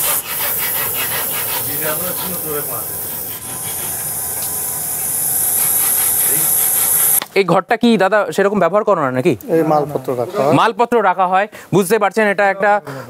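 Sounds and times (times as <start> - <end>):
snake hissing: 0.0 - 7.2.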